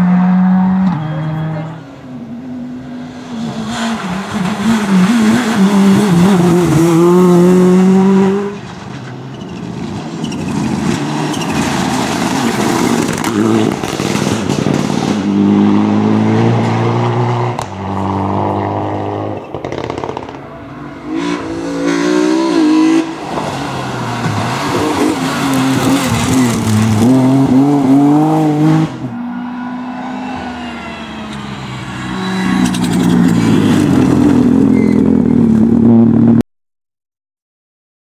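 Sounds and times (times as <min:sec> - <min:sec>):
rally car engines revving: 0:00.0 - 0:36.4
tyres on gravel: 0:08.5 - 0:15.1, 0:23.1 - 0:27.7.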